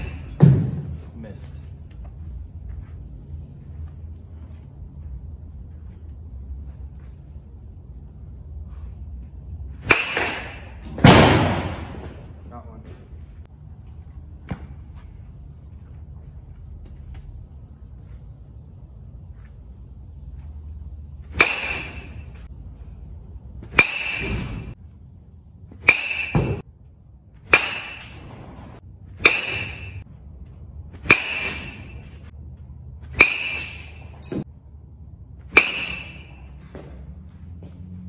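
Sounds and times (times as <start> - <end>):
metal bat cracking balls: 9.8 - 12.2, 21.3 - 22.5, 23.6 - 24.8, 25.8 - 26.6, 27.5 - 28.4, 29.2 - 30.0, 31.0 - 32.3, 33.1 - 34.4, 35.5 - 36.5.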